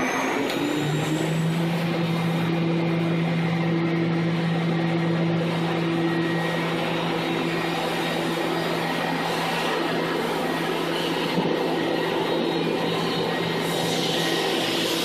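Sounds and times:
rushing hiss of coolant spray: 0:13.6 - 0:15.0.

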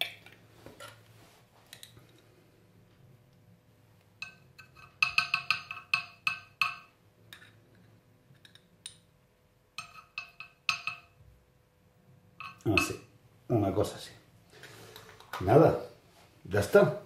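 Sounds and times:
teaspoon clinking against glass jar: 0:04.2 - 0:07.6, 0:09.8 - 0:11.2, 0:12.4 - 0:13.0.

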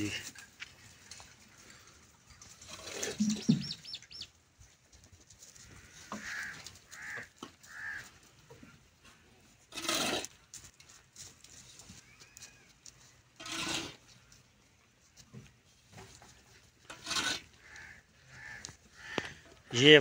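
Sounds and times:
goats feeding at a trough: 0:00.0 - 0:20.0
birds chirping: 0:02.4 - 0:04.4.

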